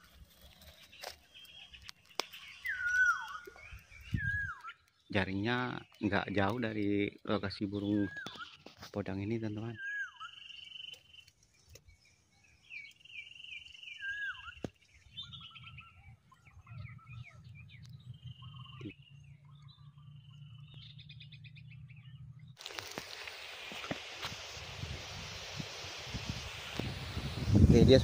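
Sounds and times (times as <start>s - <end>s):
high steady bird trill: 0.0s - 8.8s, 9.4s - 22.5s
birds chirping and whistling: 0.0s - 22.6s.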